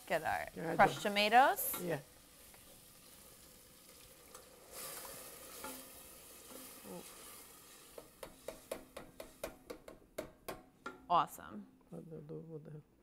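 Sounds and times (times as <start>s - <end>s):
tomatoes hissing in hot oil: 0.0s - 9.6s
wooden spoon knocking pot: 8.0s - 11.1s.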